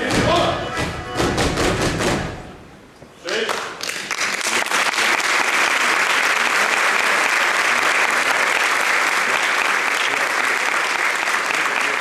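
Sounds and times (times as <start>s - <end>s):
audience applauding: 3.3s - 12.0s.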